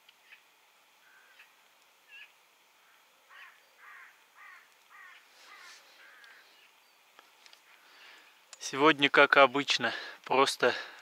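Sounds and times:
harsh caw-like bird calls: 1.0 - 6.8, 7.8 - 8.4
bird chirps: 1.0 - 7.1.

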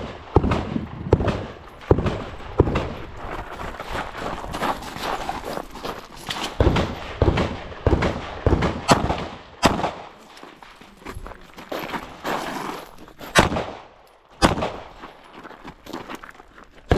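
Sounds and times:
footsteps crunching on gravel: 1.5 - 7.1, 10.1 - 16.9
handgun shots: 6.6 - 10.2, 13.3 - 14.9.

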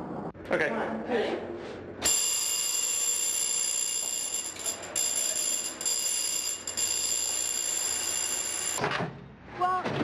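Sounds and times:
door alarm ringing: 2.0 - 8.8.

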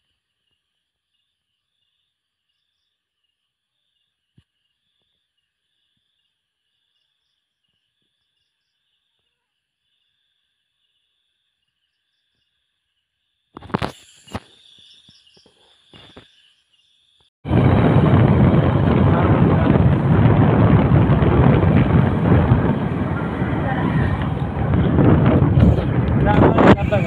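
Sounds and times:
insect chirping in pulses: 0.1 - 17.3
loud steady rushing noise: 17.5 - 27.0.

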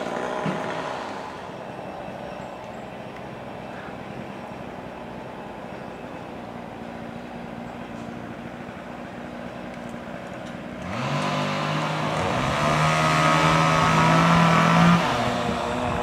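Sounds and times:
chainsaw revving: 0.0 - 1.5, 10.6 - 16.0
low engine hum: 0.0 - 16.0.

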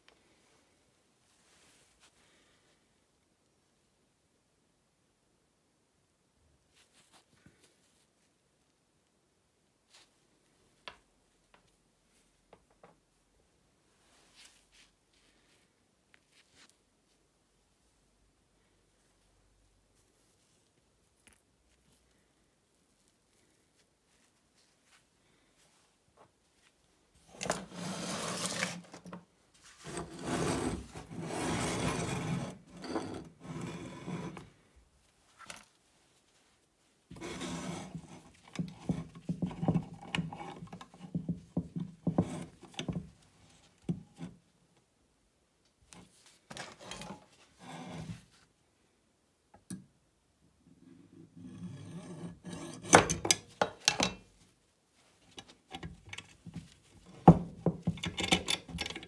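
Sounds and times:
metal case scraping on stone: 27.4 - 29.0, 29.8 - 34.4
metal clicks and knocks: 57.4 - 59.0.

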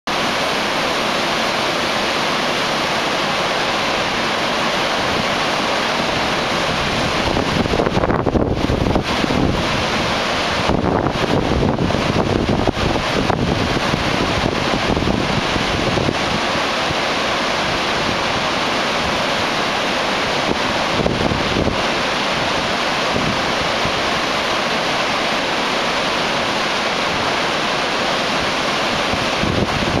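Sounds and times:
waterfall rushing: 0.1 - 30.0
wind buffeting microphone: 6.1 - 19.5, 20.1 - 24.4, 28.8 - 30.0.

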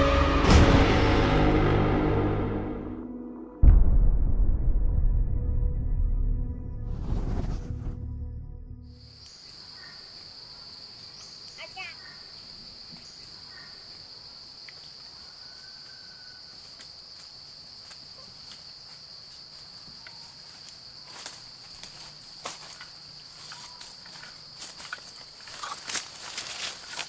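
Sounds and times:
insects droning: 8.9 - 27.0
footsteps through leaf litter: 16.6 - 27.0.

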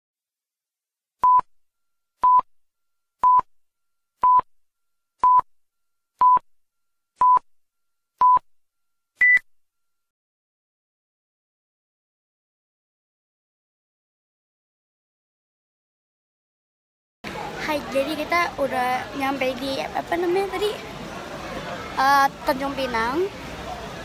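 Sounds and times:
electronic countdown beeps: 4.2 - 4.5, 5.2 - 5.5, 6.2 - 6.4, 7.2 - 7.5, 8.2 - 8.4, 9.2 - 9.4.

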